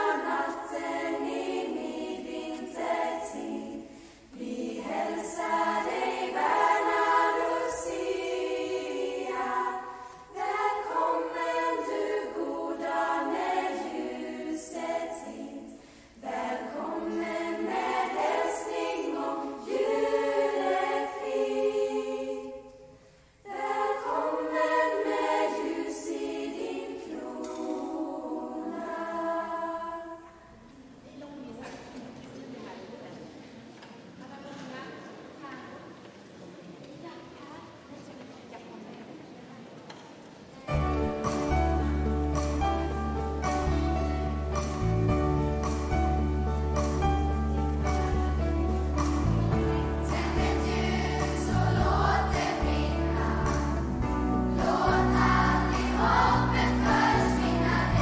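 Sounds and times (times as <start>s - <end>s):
choir of young women singing: 0.0s - 31.8s, 40.6s - 58.0s.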